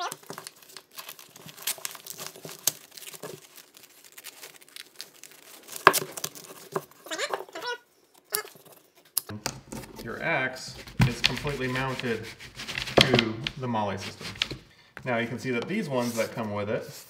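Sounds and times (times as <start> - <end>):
fabric rustling and ripping: 0.0 - 7.3, 10.7 - 14.7.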